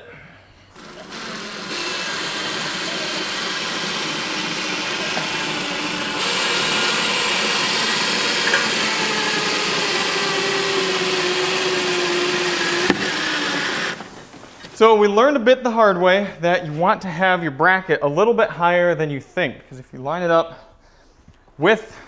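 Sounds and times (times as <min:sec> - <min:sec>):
cordless drill drilling into metal: 0:00.7 - 0:14.1.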